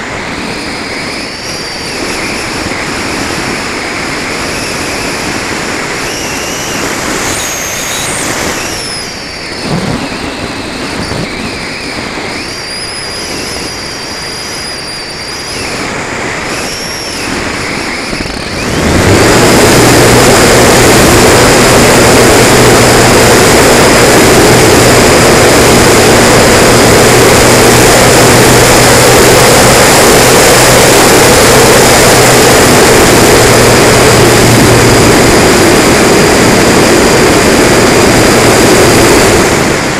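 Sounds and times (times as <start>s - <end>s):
air rushing past glider: 0.0s - 39.9s
electric motor droning: 0.0s - 39.9s
faint whistles: 0.4s - 3.6s, 4.4s - 18.8s.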